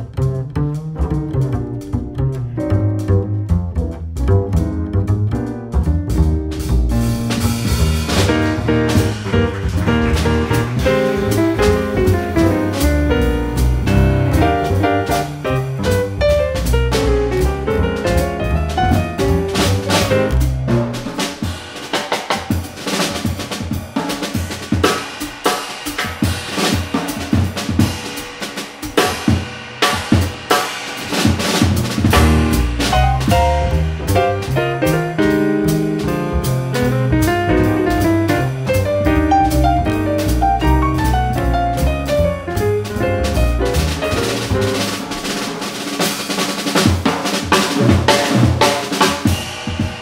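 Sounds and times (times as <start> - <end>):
bass drum: 0.0 - 50.0
snare drum: 5.8 - 50.0.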